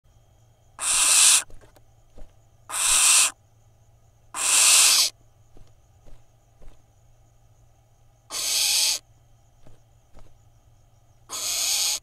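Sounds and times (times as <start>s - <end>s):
owl hissing screeches: 0.8s - 1.5s, 2.7s - 3.4s, 4.3s - 5.2s, 8.3s - 9.0s, 11.3s - 12.0s.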